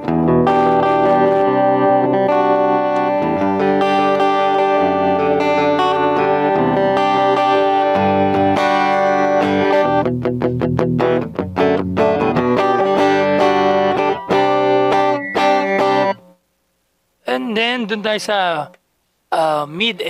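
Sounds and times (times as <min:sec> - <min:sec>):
electric guitar playing: 0:00.0 - 0:16.4.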